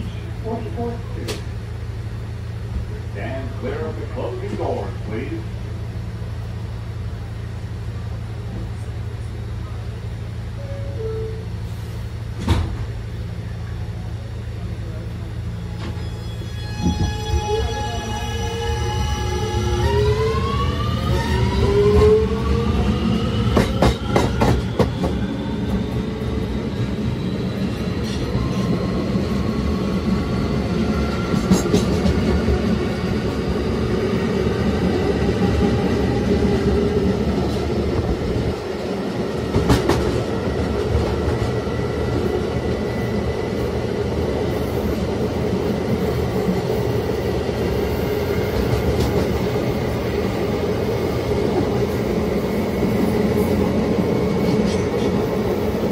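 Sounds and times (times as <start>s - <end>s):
subway inverter whining: 0.0s - 55.9s
train running rumble: 0.0s - 55.9s.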